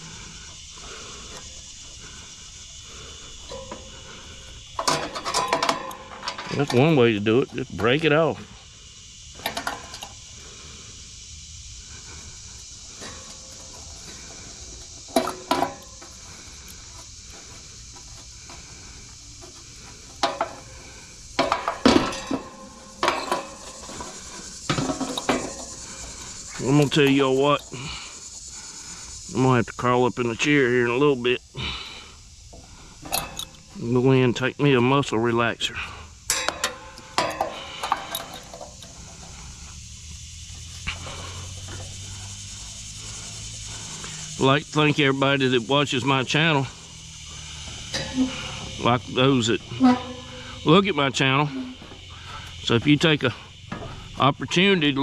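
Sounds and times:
metal scraping: 3.2s - 8.0s, 45.9s - 54.0s
wrench clanking on metal: 4.8s - 8.0s, 21.4s - 24.1s, 33.0s - 33.7s, 36.3s - 38.9s, 47.8s - 51.9s.

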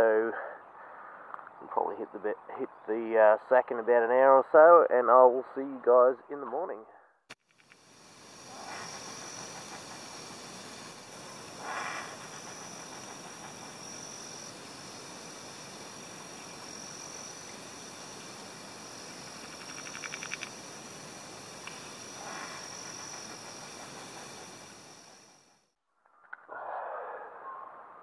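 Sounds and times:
crickets chirping: 0.0s - 25.8s
fast rattling call: 8.4s - 14.3s, 19.4s - 20.6s, 21.7s - 25.2s.

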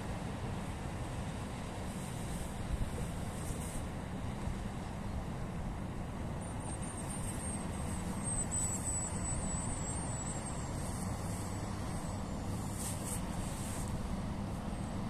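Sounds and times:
barge engine rumble: 0.0s - 15.0s
faint high chirping: 6.9s - 12.5s.

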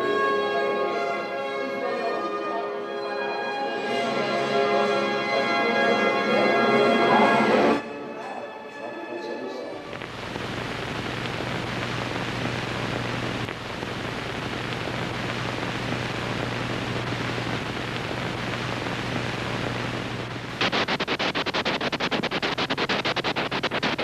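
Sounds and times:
static hiss: 9.8s - 24.0s.

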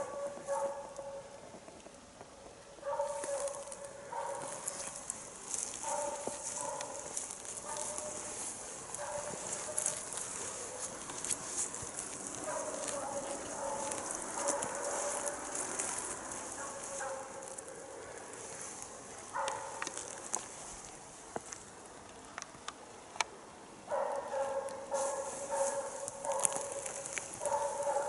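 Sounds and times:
dog barking: 0.0s - 1.3s, 2.8s - 4.8s, 5.7s - 11.0s, 12.4s - 18.2s, 19.3s - 19.9s, 23.9s - 28.0s
footsteps snapping twigs: 3.1s - 21.7s, 24.6s - 28.0s.

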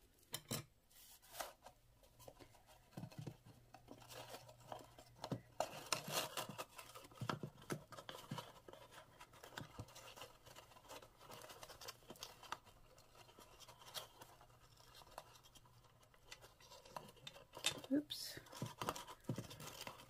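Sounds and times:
paper rustling and tapping: 1.3s - 20.0s.

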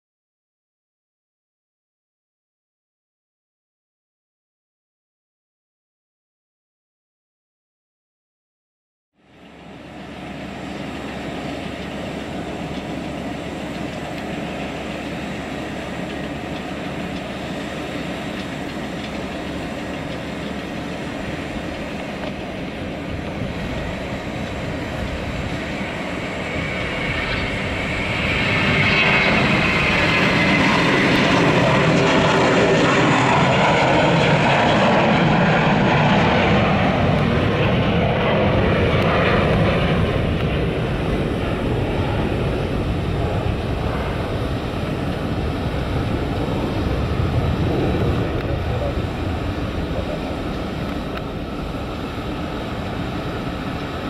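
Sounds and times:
jet engines at takeoff: 9.2s - 54.0s.

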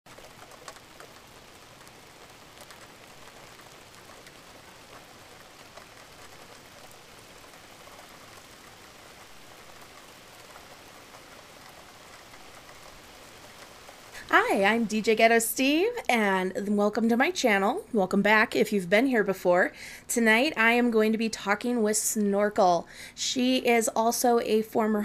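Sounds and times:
single raindrops ticking: 0.1s - 14.2s
steady rain hiss: 0.1s - 25.0s.

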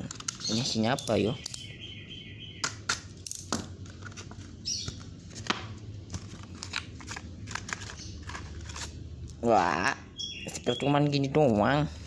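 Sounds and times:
low steady hum: 0.0s - 12.0s
card tearing rustle: 6.1s - 9.0s.

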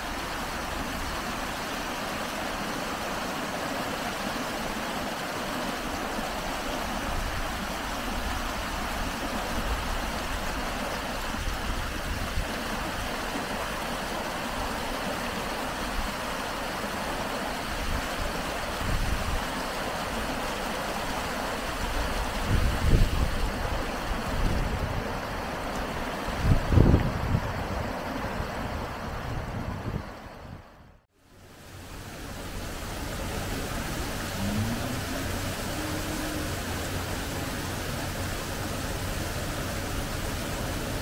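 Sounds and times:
flowing water rushing: 0.0s - 30.5s, 31.1s - 41.0s
wind gusts on microphone: 21.7s - 25.5s, 26.2s - 31.0s.

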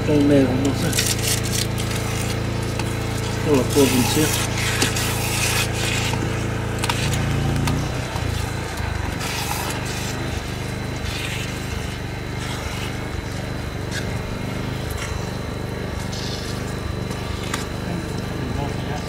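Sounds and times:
small engine running: 0.0s - 19.0s.

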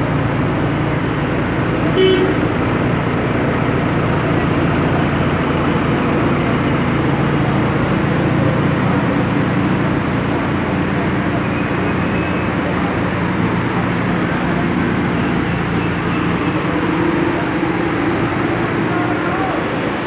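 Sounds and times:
bus engine passing: 0.0s - 20.0s
vehicle horn toot: 2.0s - 2.4s.

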